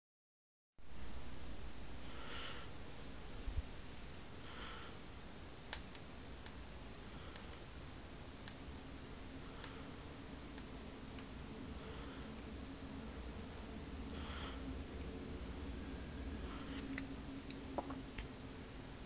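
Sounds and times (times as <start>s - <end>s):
faint steady hum: 0.8s - 19.0s
sharp clicks: 5.7s - 6.6s.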